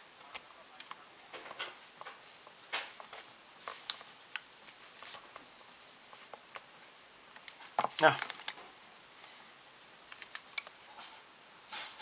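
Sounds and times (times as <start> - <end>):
vinyl parts rubbing: 0.0 - 8.6
plastic parts clicking: 10.1 - 10.8.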